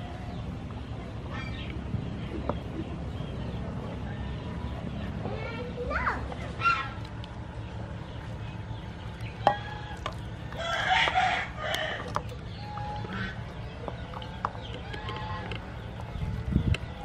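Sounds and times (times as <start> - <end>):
chickens clucking: 0.0 - 17.0
rooster crowing: 9.5 - 12.2.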